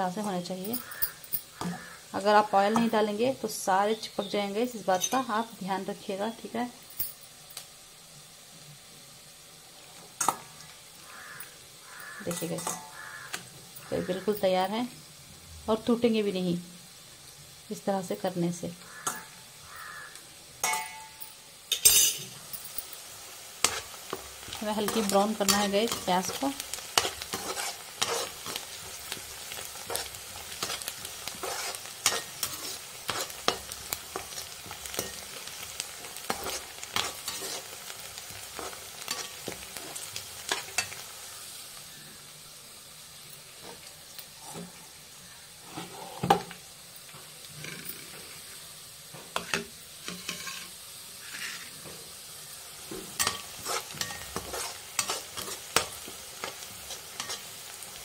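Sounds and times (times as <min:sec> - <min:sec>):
onions sizzling in hot oil: 0:00.0 - 0:58.0
metal spoon scraping pan: 0:11.2 - 0:14.4, 0:18.9 - 0:19.4, 0:23.6 - 0:29.2, 0:29.8 - 0:35.3, 0:36.2 - 0:37.8, 0:49.4 - 0:51.8, 0:53.2 - 0:57.5.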